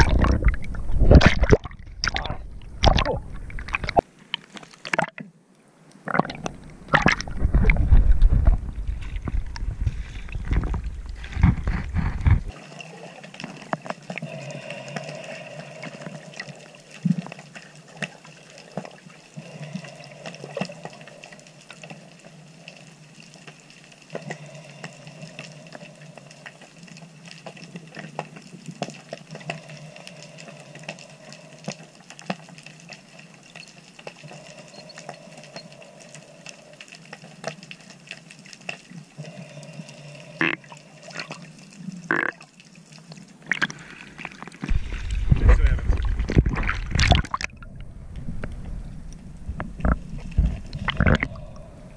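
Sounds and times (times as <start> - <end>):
water splashing and sloshing: 0.0 - 51.9
muffled underwater hiss: 5.7 - 51.9
faint underwater clicks: 13.2 - 51.9.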